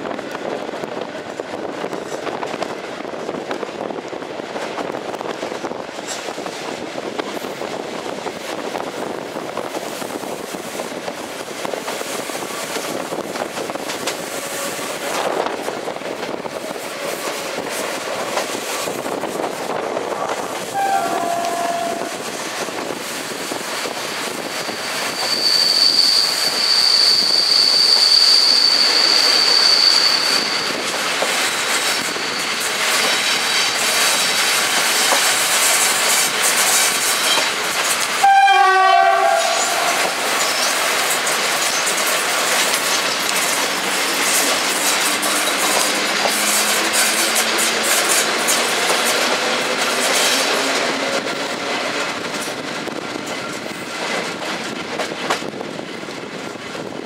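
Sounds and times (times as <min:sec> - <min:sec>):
train wheels rumbling on rails: 0:00.0 - 0:57.0
high-pitched wheel squeal: 0:20.7 - 0:22.2, 0:24.5 - 0:30.9.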